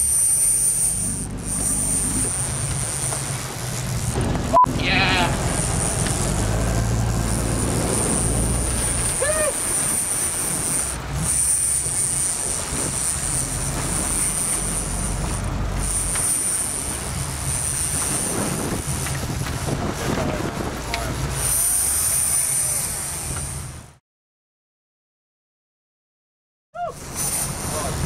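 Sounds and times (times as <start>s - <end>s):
high whine: 0.0s - 18.9s
boat engine running: 0.0s - 24.0s, 27.0s - 28.0s
wind and water rushing: 1.3s - 11.5s, 12.3s - 16.1s, 16.7s - 21.6s.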